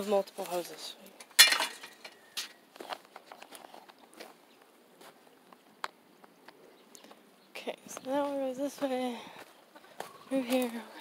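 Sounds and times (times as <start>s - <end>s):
footsteps on dirt and straw: 0.0s - 1.0s, 1.9s - 5.4s, 7.9s - 11.0s.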